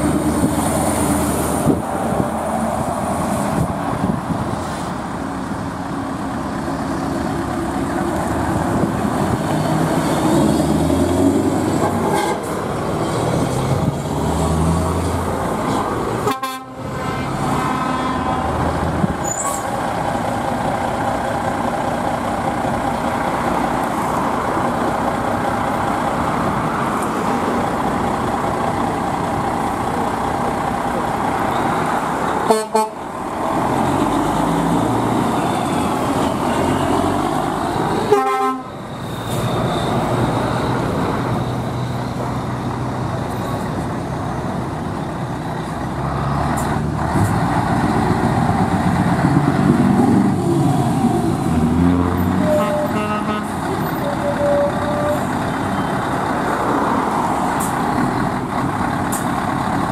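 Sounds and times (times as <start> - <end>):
heavy truck engines rumbling: 0.0 - 59.9
truck horn toots: 11.8 - 12.5, 16.2 - 18.4, 32.4 - 33.0, 38.0 - 38.8, 52.4 - 55.3.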